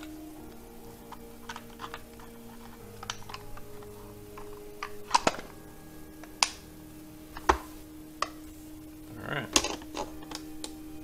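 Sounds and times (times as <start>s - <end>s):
hard plastic clicks and snaps: 0.0s - 5.6s, 9.5s - 10.8s.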